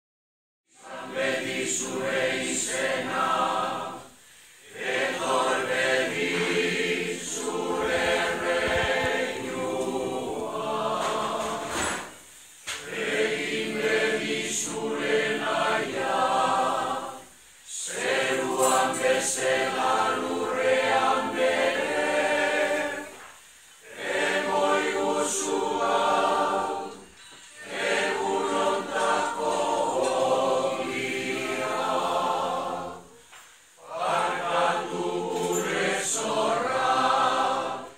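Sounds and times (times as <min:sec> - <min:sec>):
choir singing: 0:00.7 - 0:37.9.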